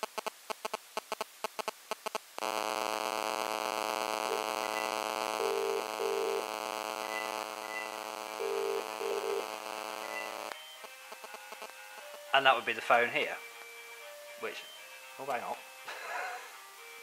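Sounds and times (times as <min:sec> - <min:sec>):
buzzing line hum: 0:00.0 - 0:12.3
phone ringing tone: 0:02.4 - 0:12.4
phone dialing beeps: 0:07.1 - 0:10.5.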